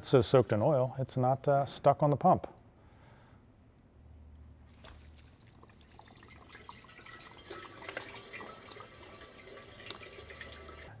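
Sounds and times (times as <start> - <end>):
coolant dripping into a drain pan: 5.4 - 10.9.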